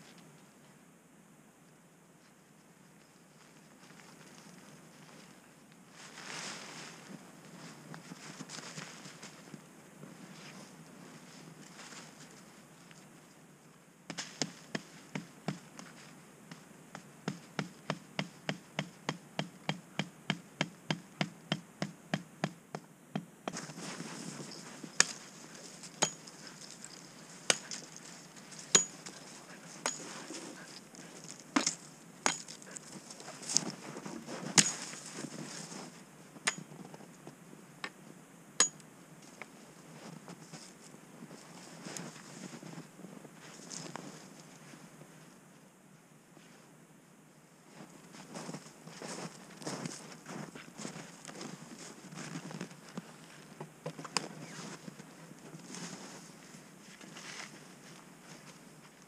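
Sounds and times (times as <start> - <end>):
hatchet pounding stake: 17.0 - 23.7, 26.0 - 26.3, 27.5 - 27.8, 28.7 - 29.0, 29.8 - 30.1, 31.6 - 32.7, 34.5 - 34.9
hatchet chopping branch: 27.5 - 27.8.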